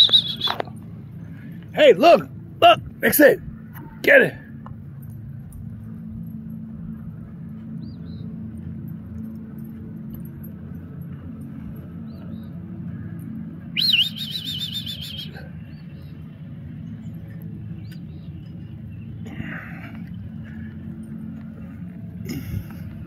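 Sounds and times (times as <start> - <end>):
warbling bird trill: 0.0 - 0.6, 13.7 - 15.8
birds chirping: 0.0 - 4.7, 5.6 - 23.0
steady low rumble: 0.0 - 23.0.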